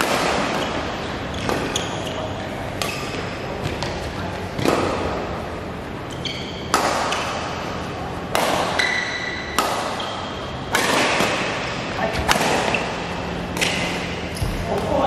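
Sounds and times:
racket hitting shuttlecock: 0.0 - 4.0, 6.6 - 14.6.

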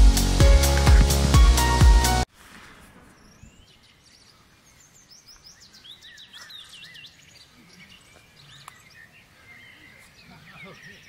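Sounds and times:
small birds chirping: 3.0 - 11.0.

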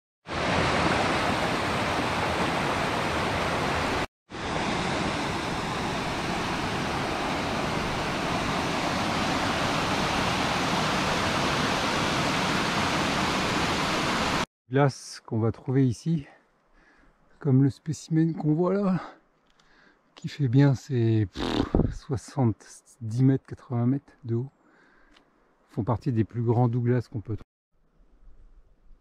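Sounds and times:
creek rushing over rocks: 0.3 - 14.4.

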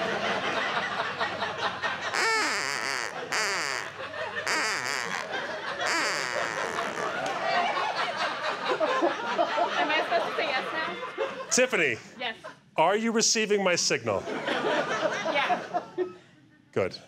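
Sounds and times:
audience laughing: 0.0 - 11.5, 14.2 - 16.2.

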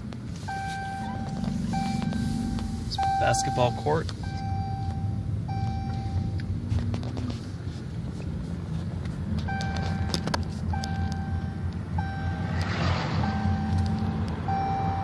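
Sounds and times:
car engine and road rumble: 0.0 - 15.0
repeating electronic beep: 0.5 - 6.4, 9.5 - 15.0.

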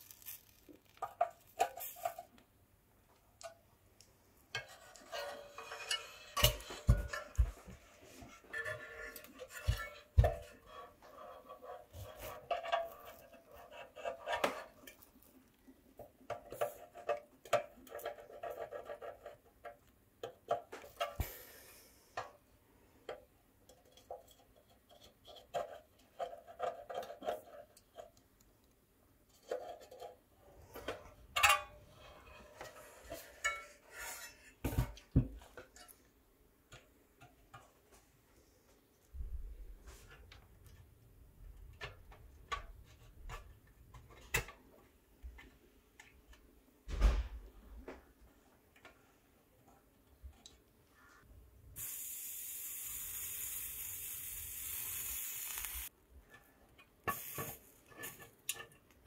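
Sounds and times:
light metal clicks and scrapes: 4.5 - 15.6, 23.1 - 36.1, 56.2 - 59.0.

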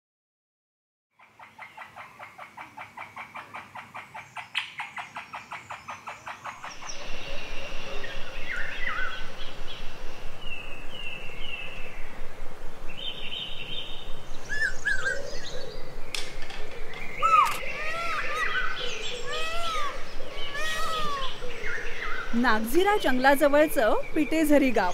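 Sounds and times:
birdsong with whistles: 13.0 - 15.7, 16.9 - 24.9.

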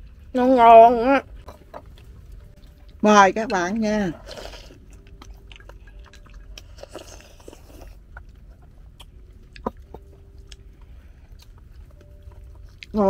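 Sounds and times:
people slurping and chewing: 4.1 - 12.0.

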